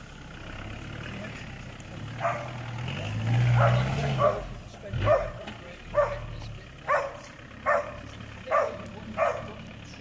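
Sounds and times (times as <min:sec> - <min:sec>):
dog barking: 0:02.2 - 0:02.6, 0:03.5 - 0:09.6.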